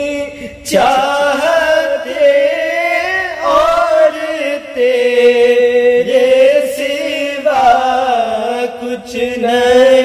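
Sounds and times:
men singing devotional song: 0.0s - 10.0s.

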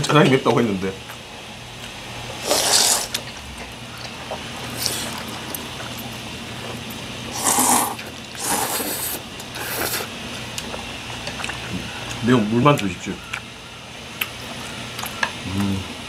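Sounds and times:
person slurping noodles: 2.4s - 3.2s, 4.7s - 5.6s, 7.3s - 10.1s.

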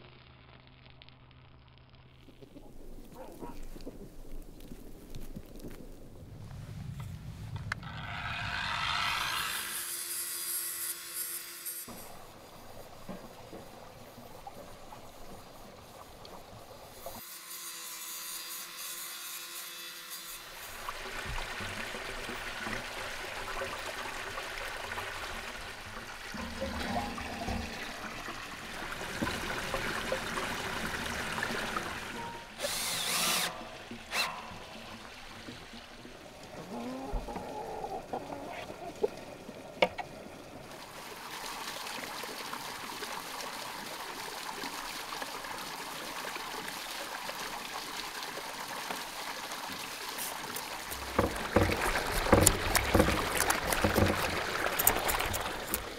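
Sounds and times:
water running into stone basin: 20.3s - 36.0s, 40.8s - 55.9s
knocks and clicks of handwork: 50.9s - 55.1s.

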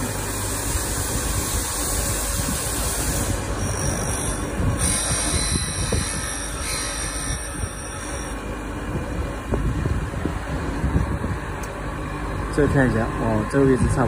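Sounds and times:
grinder motor running: 1.4s - 8.5s
abrasive wheel screeching on steel: 1.6s - 8.4s.

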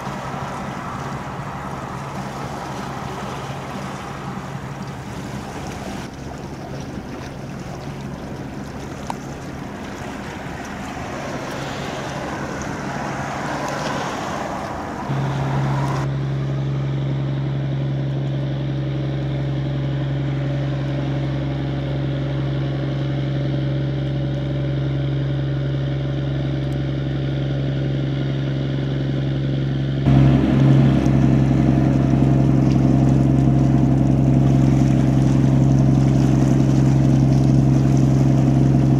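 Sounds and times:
wind and water hiss: 0.0s - 16.8s, 30.1s - 38.9s
ship engines droning: 0.0s - 38.9s.

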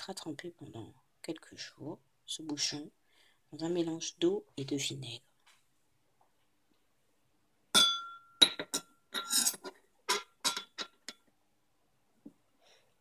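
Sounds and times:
metal stopper clinking in ceramic bowl: 7.8s - 11.2s.

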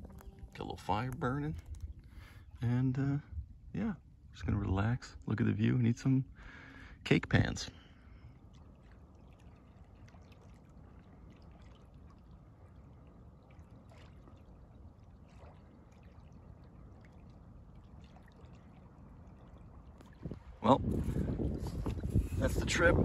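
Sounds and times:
faint water lapping: 0.0s - 23.0s
ducks splashing in water: 8.1s - 20.6s
water drips and plops: 8.4s - 20.6s.

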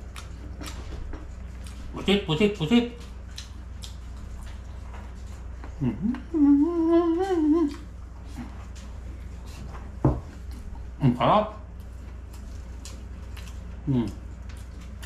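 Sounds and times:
steady low hum: 0.0s - 15.0s
man humming with food in mouth: 5.7s - 8.6s, 13.8s - 14.2s
short vocal sound: 5.8s - 7.8s.

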